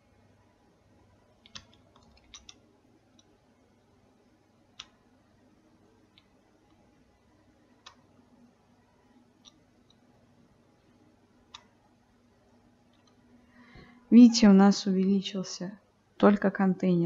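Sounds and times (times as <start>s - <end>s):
computer mouse clicking: 1.4s - 3.3s, 4.8s - 5.0s, 7.8s - 8.0s, 9.4s - 10.0s, 11.5s - 11.7s, 12.9s - 13.2s.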